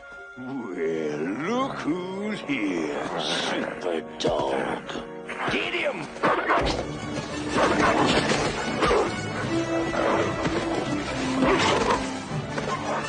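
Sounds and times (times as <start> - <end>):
film score music: 0.0 - 13.0
dog and wolves growling: 6.4 - 13.0.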